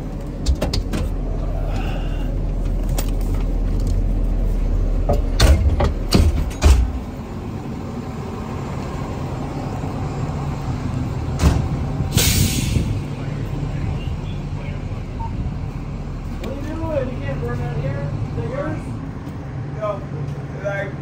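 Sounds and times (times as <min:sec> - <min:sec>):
diesel engine rumbling: 0:00.0 - 0:21.0
knocks and clunks: 0:00.3 - 0:01.2, 0:05.0 - 0:07.1, 0:11.3 - 0:11.9.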